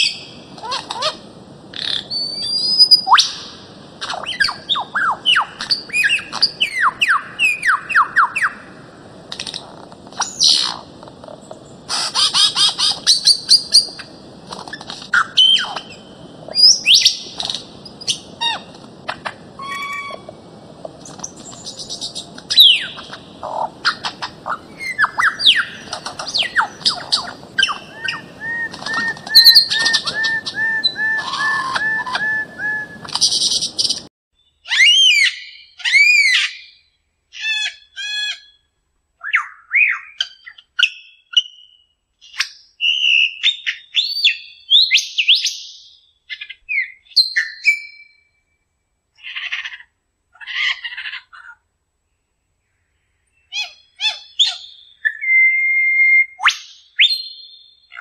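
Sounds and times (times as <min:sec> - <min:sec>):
birds squawking and calling: 0:00.0 - 0:08.8, 0:09.4 - 0:20.4, 0:21.0 - 0:34.1.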